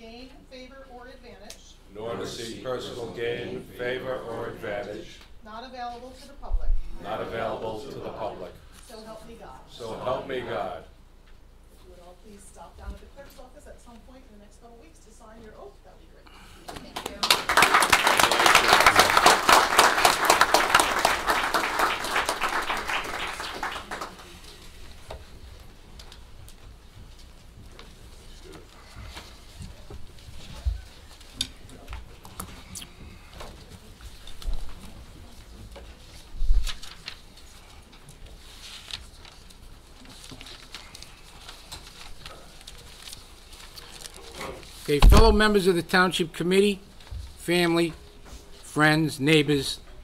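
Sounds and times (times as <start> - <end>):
audience applauding: 17.0 - 24.7
papers rustling: 23.4 - 45.7.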